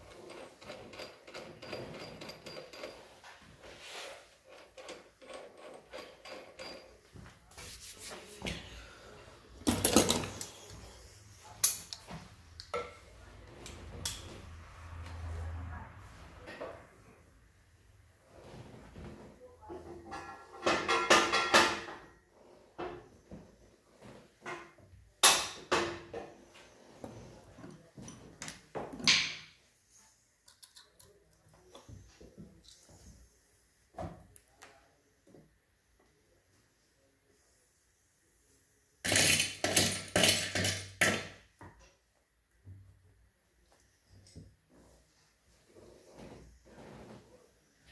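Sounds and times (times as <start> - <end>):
metallic jangle of tools: 0.0 - 3.2.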